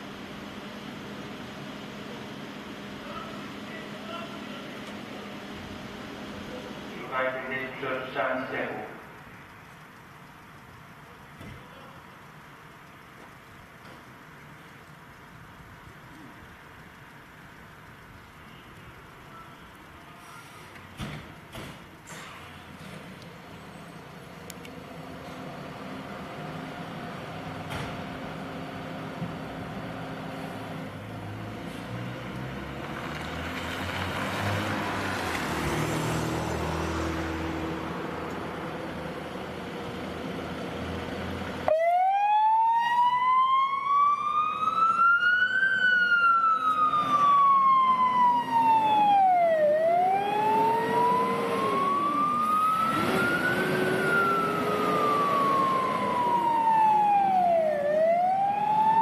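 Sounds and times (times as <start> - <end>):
diesel engine revving: 22.0 - 41.8, 43.9 - 59.0
siren wailing: 41.7 - 59.0.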